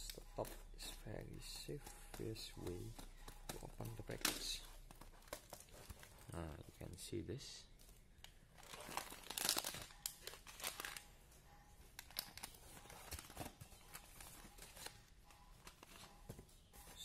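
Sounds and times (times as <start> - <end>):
paper package tearing and rustling: 8.6 - 11.1.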